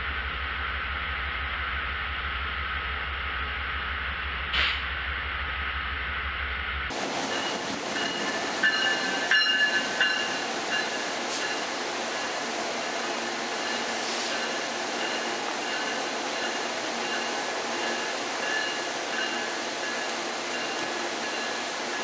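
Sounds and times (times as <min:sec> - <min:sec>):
diesel locomotive idling: 0:00.0 - 0:22.0
burst of air hiss: 0:04.5 - 0:04.8.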